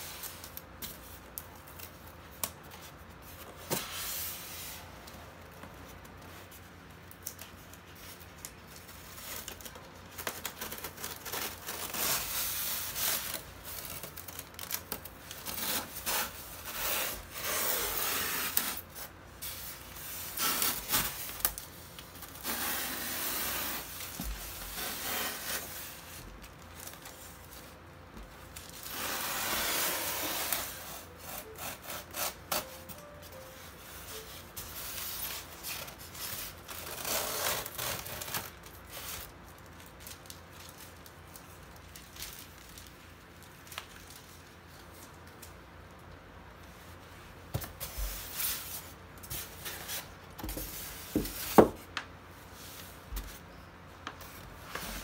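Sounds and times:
polystyrene foam scraping: 0:10.5 - 0:27.4, 0:28.6 - 0:39.3.

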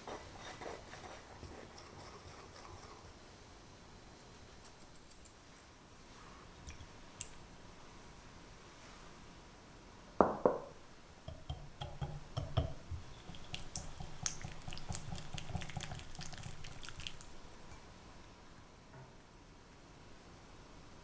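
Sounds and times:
whisk beating eggs in glass bowl: 0:11.3 - 0:17.2.

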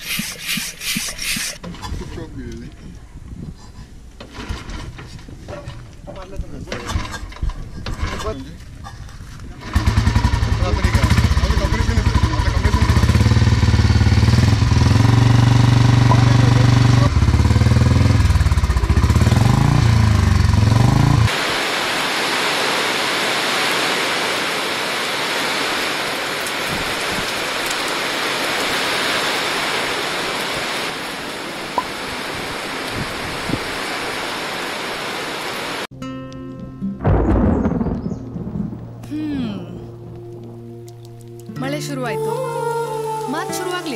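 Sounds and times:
motorcycle engine revving: 0:09.6 - 0:21.4.

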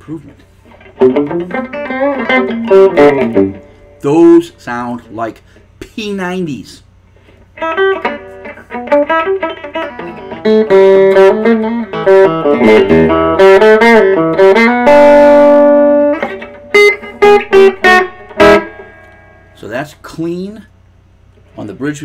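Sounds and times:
clean electric guitar notes: 0:00.8 - 0:04.0, 0:07.6 - 0:19.6.

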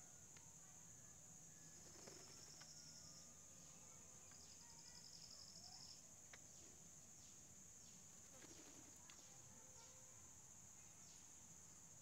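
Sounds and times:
cricket-like pulsing trill: 0:00.9 - 0:03.6
faint clicks: 0:06.3 - 0:06.5.

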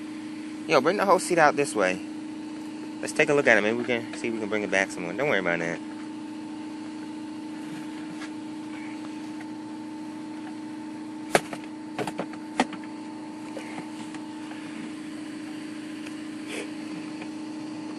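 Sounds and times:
steady hum: 0:00.0 - 0:17.9.

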